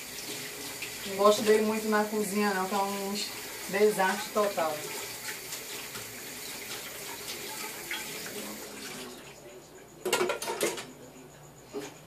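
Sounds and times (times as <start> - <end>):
sink tap running: 0.0 - 9.2
dishes clattering: 10.0 - 10.9.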